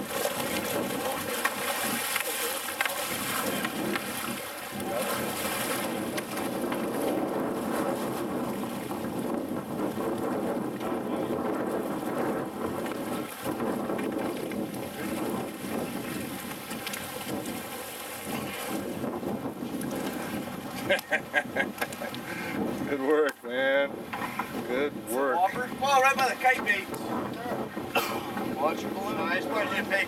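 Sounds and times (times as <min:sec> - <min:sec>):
fish splashing in water: 0:00.0 - 0:07.2
boat engine running: 0:00.0 - 0:22.9, 0:23.9 - 0:30.0
water washing along hull: 0:00.0 - 0:30.0.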